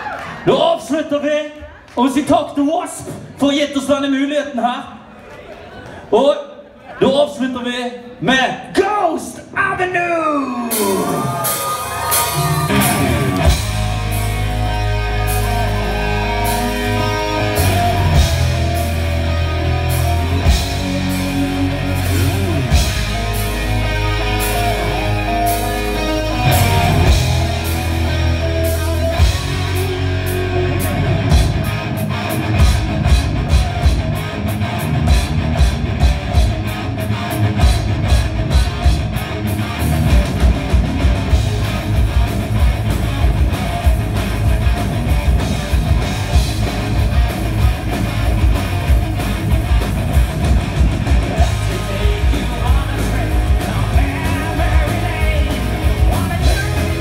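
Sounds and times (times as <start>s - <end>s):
heavy metal band playing: 9.6s - 57.0s
fast drum beat: 40.0s - 57.0s.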